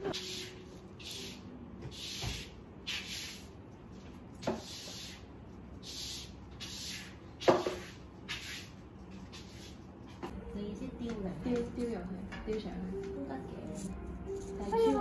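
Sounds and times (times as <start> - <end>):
paintbrush rubbing on palette: 0.0 - 10.4.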